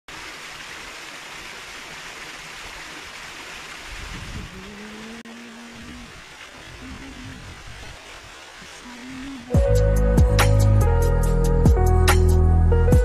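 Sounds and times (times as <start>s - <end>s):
water rushing in a ditch: 0.1s - 9.8s.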